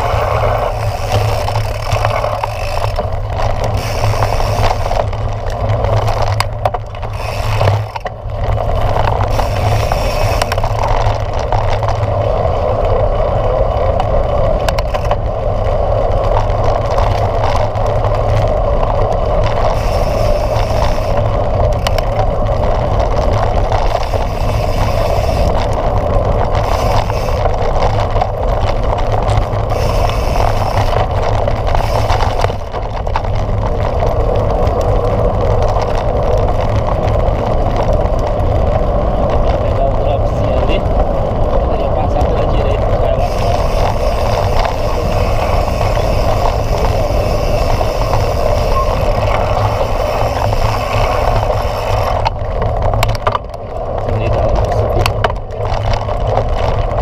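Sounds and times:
bike knocking over bumps: 0:00.0 - 0:12.2, 0:42.1 - 0:57.0
low rumble: 0:00.0 - 0:57.0
tyre and wind noise: 0:00.0 - 0:57.0.

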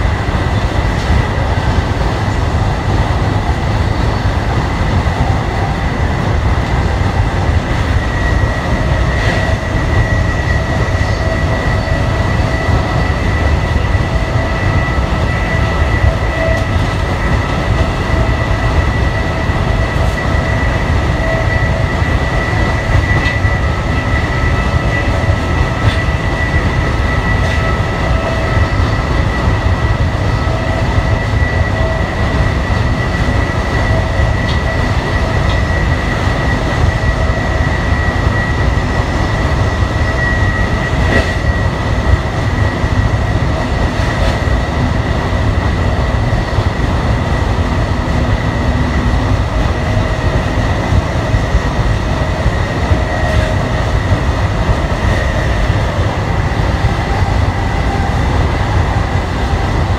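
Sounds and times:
high-pitched whine: 0:00.0 - 0:59.9
train wheels rumbling on rail: 0:00.0 - 0:59.9.

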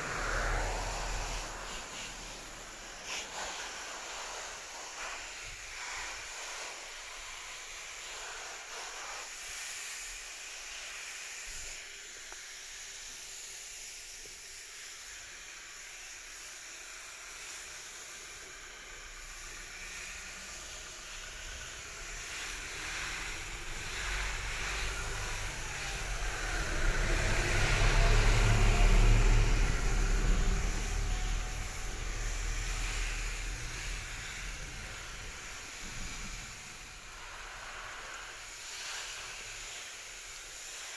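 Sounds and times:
low rumble: 0:00.0 - 0:03.0, 0:21.4 - 0:37.6
hose nozzle spraying water: 0:00.0 - 0:40.9
water falling on leafy plants: 0:18.9 - 0:40.9.

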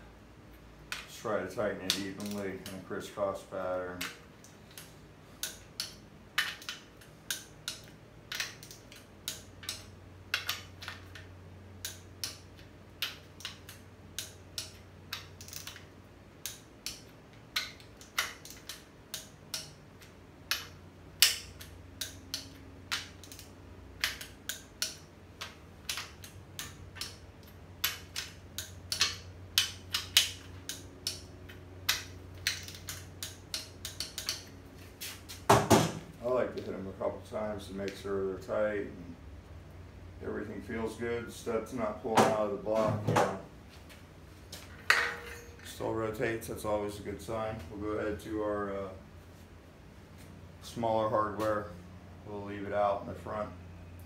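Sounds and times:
ratchet torque wrench clicking: 0:20.5 - 0:34.5.

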